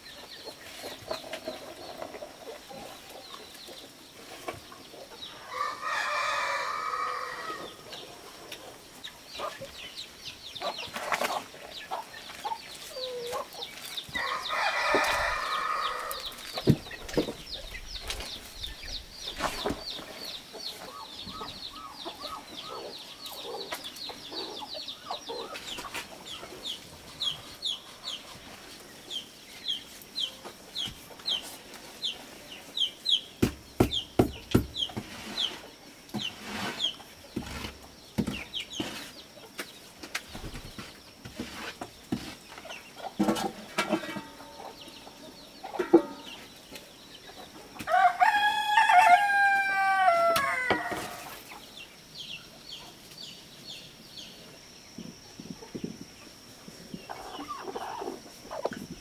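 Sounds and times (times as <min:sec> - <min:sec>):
chickens clucking and peeping: 0:00.0 - 0:59.0
rooster crowing: 0:05.4 - 0:07.8, 0:14.2 - 0:16.4, 0:47.9 - 0:51.2.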